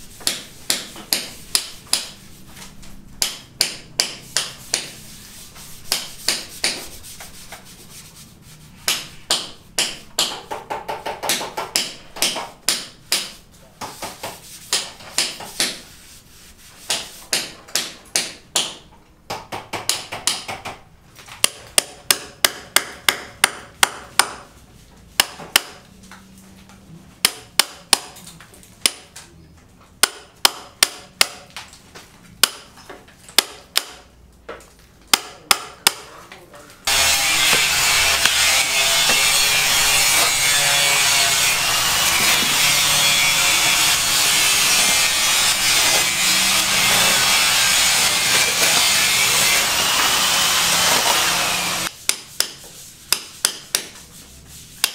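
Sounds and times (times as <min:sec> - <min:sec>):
hammer blows: 0:36.9 - 0:51.9.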